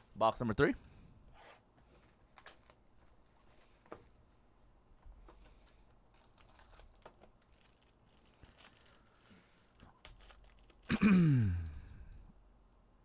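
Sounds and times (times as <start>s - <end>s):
foil wrapper tearing and crinkling: 6.1s - 10.9s
person's drawn-out falling voice: 10.9s - 12.1s.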